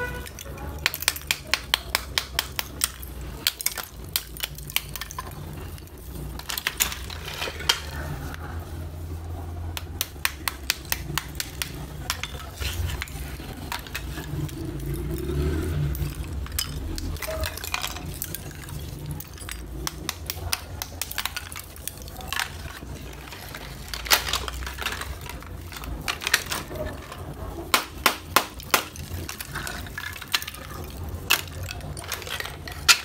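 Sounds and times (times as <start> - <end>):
clay pieces clinking together: 0.0 - 8.4, 9.6 - 33.0
small hammer tapping clay: 0.8 - 3.0, 9.7 - 12.2.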